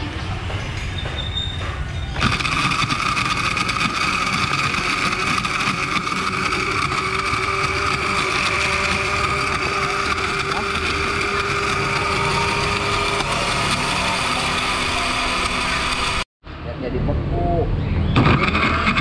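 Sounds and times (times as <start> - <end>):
blender running: 2.2 - 16.3, 18.2 - 19.0.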